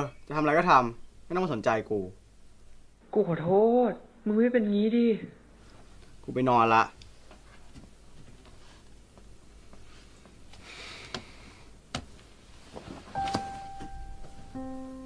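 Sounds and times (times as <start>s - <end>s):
sustained music note: 13.2s - 15.0s.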